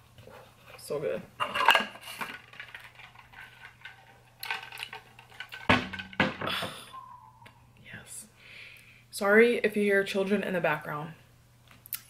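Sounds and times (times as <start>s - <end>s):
cup knocking down on surface: 5.6s - 6.7s.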